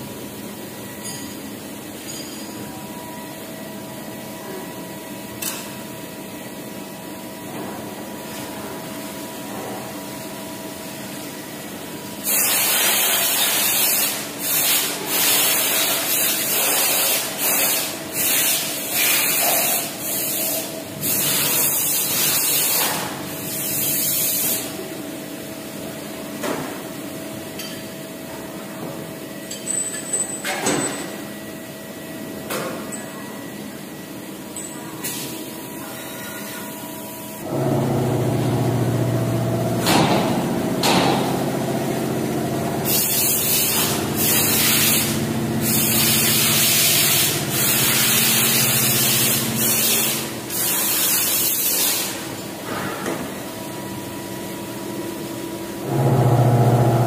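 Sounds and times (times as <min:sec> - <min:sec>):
machine hum: 0:37.4 - 0:50.6, 0:55.8 - 0:57.0
compressed-air gun hissing: 0:42.8 - 0:52.0.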